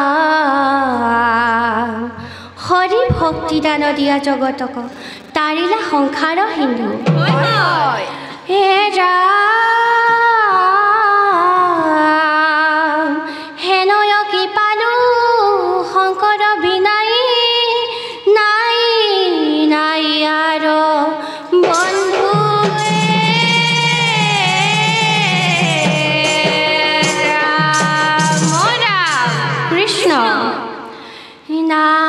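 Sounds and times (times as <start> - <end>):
solo voice chanting: 7.0 - 8.4
lower voices singing: 7.1 - 8.5, 21.6 - 31.0.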